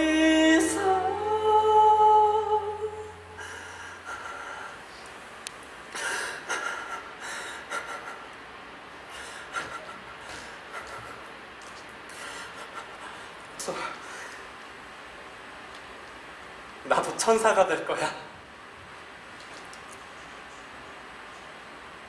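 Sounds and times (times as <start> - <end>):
band sustained low note: 0.0 - 4.4.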